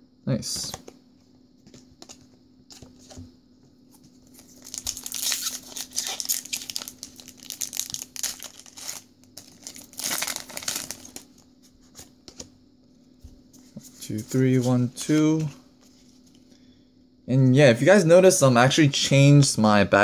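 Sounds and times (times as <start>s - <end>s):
foil wrapper tearing and crinkling: 4.3s - 11.2s.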